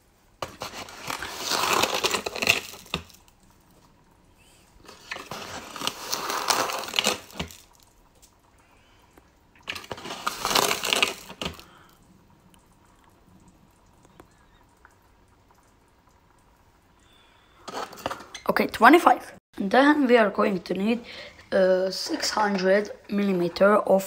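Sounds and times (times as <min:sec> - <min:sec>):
sugar pouring into plastic bowl: 0:05.0 - 0:07.8.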